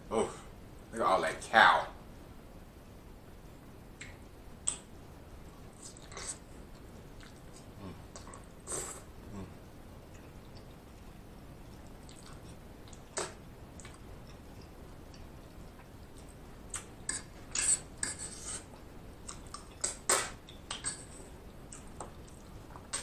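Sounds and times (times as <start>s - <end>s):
fork clicking and scraping plate: 17.1s - 18.6s.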